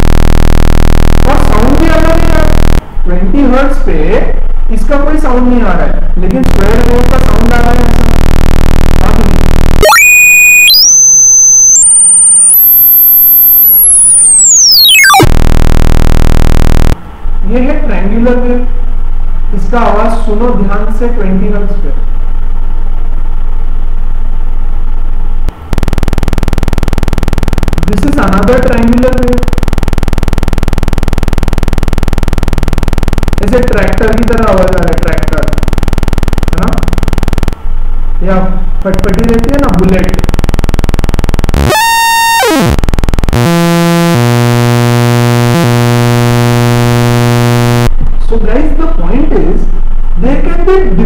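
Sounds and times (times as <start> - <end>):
buzzy sawtooth wave tone: 0.0 - 3.0, 6.3 - 17.0, 39.0 - 48.0
low steady buzz tone: 0.0 - 50.8.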